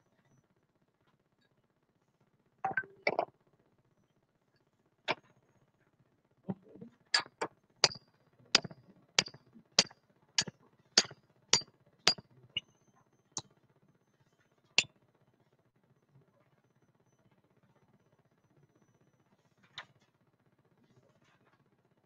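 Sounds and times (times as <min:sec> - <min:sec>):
hammer striking metal: 0:08.6 - 0:11.2.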